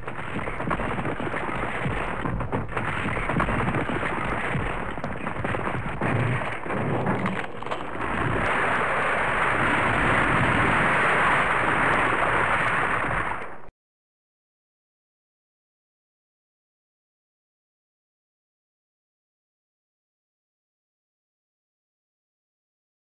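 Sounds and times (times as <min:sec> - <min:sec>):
rushing noise with crackles: 0:00.0 - 0:13.7.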